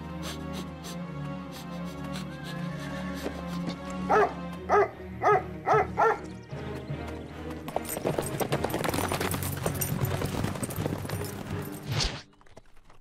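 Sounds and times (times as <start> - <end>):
background music: 0.0 - 13.0
cartoon dog barking: 4.1 - 6.2.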